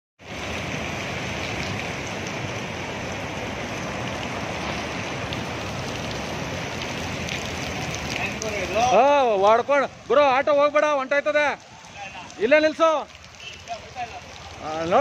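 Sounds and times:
steady rain hiss: 0:00.2 - 0:15.0.

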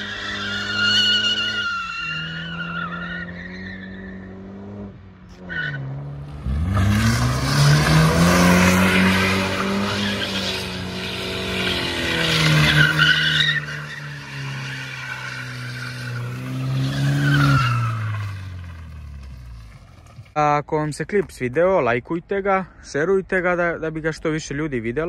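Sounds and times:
car engine revving: 0:00.0 - 0:20.2
tyres squealing: 0:08.6 - 0:18.8.

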